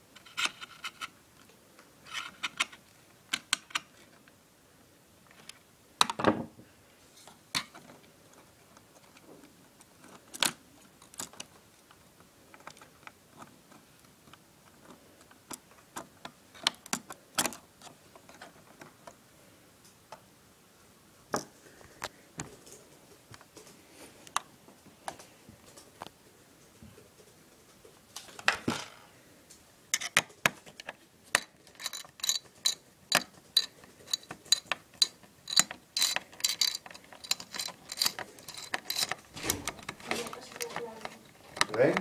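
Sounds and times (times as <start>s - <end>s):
laptop parts clicking and tapping: 2.1s - 4.0s, 30.0s - 42.0s.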